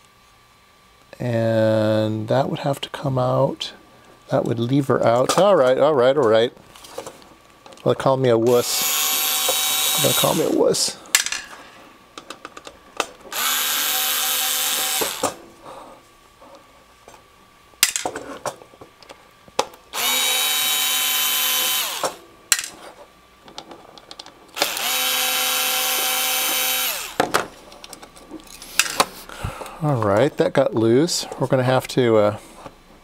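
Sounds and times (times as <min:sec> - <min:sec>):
power screwdriver spinning: 0:08.5 - 0:10.6, 0:13.3 - 0:15.4, 0:20.0 - 0:22.2, 0:24.6 - 0:27.2.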